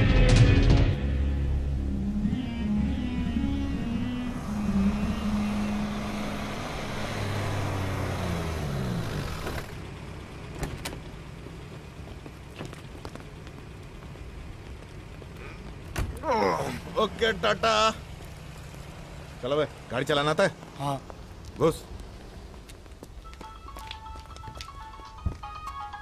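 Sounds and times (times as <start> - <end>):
van engine running: 0.0 - 23.3.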